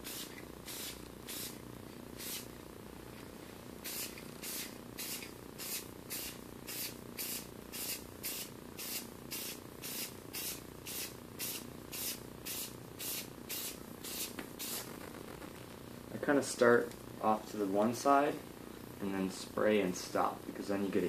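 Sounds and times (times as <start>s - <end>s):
spray paint can hissing bursts: 0.0s - 1.6s, 2.2s - 2.5s, 3.8s - 15.0s.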